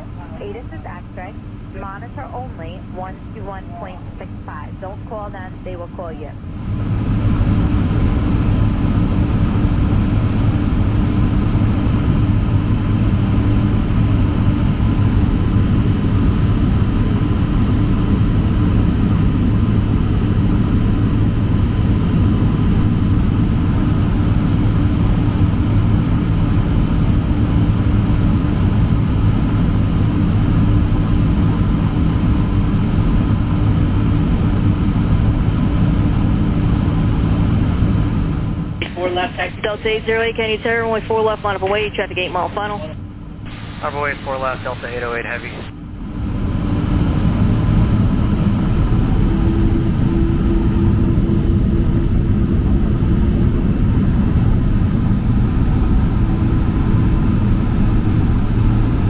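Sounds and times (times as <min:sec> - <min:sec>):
faint steady tones: 0:00.0 - 0:06.5
jet engines idling: 0:00.0 - 0:59.0.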